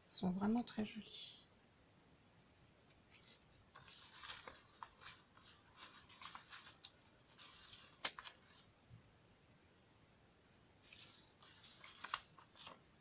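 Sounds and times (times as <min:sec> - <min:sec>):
paper rustling and crinkling: 0:03.1 - 0:08.7, 0:10.8 - 0:12.8.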